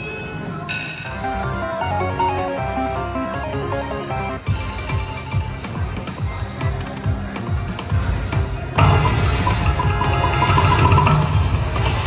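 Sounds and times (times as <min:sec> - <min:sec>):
slot machine game music: 0:01.1 - 0:05.6, 0:08.8 - 0:12.0.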